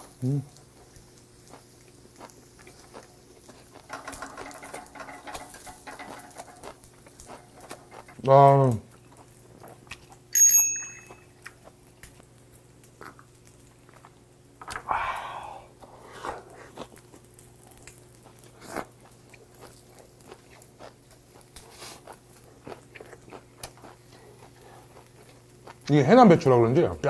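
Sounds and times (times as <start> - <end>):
steady low hum: 0.0 - 27.0
person chewing: 0.8 - 4.8, 6.1 - 10.3, 11.2 - 12.2, 12.8 - 25.9
bottle clinking against glass: 10.3 - 11.3.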